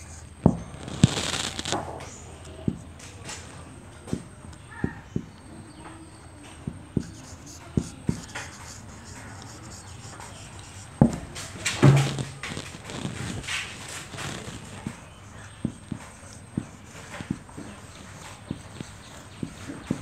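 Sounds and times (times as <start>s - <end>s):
marker scratchy strokes: 0.0s - 1.6s, 6.9s - 20.0s
marker tip tapping whiteboard: 6.7s - 11.2s.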